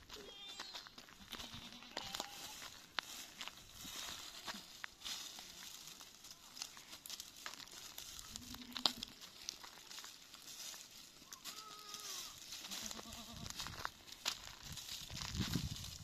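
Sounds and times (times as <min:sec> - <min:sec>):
dry leaves rustling under hands: 0:00.0 - 0:16.0
animal bleat: 0:01.2 - 0:02.7, 0:08.2 - 0:09.2, 0:11.3 - 0:13.6.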